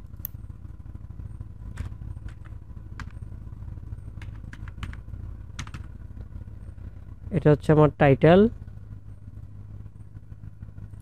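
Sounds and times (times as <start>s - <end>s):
steady low hum: 0.0s - 11.0s
keyboard keys clicking: 5.6s - 5.8s.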